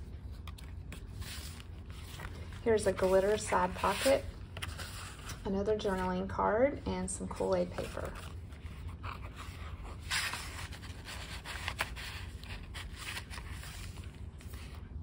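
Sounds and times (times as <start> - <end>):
paper pages rustling: 0.0 - 6.2, 7.3 - 15.0
low steady hum: 0.0 - 15.0.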